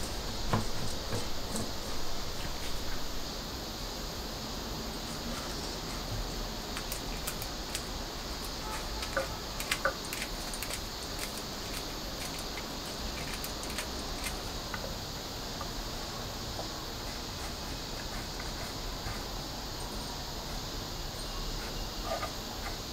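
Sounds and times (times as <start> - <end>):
steady background hiss: 0.0 - 22.9.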